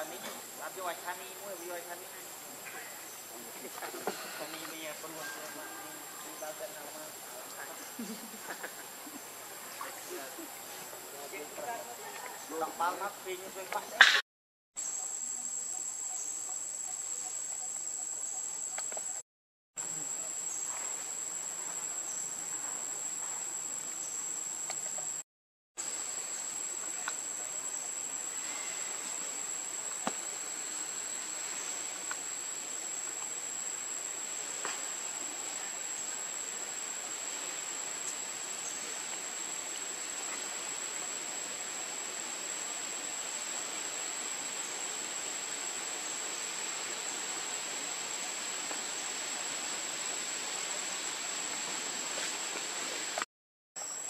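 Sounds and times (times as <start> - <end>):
insects droning: 0.0 - 14.2, 14.8 - 19.2, 19.8 - 25.2, 25.8 - 54.0
hiss: 25.8 - 53.3.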